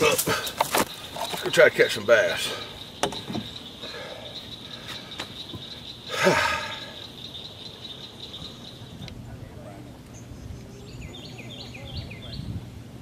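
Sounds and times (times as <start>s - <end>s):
insects trilling: 0.0s - 9.1s.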